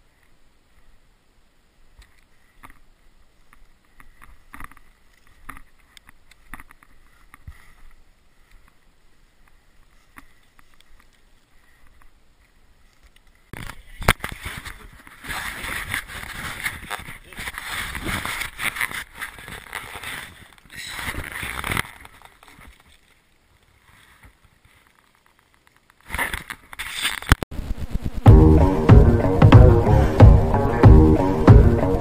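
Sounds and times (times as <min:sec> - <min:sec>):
gear rustling: 0:14.2 - 0:27.4
footsteps crunching through snow: 0:14.3 - 0:23.1
sudden rush of noise: 0:27.5 - 0:32.0.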